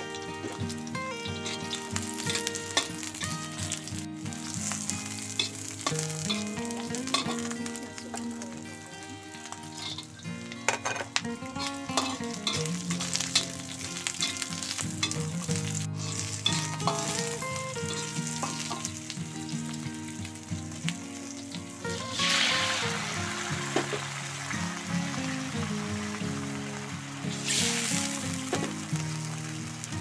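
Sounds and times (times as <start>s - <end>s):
food sizzling in hot oil: 0.0s - 30.0s
metal spatula scraping a wok: 1.3s - 3.8s, 4.4s - 7.4s, 9.6s - 19.0s.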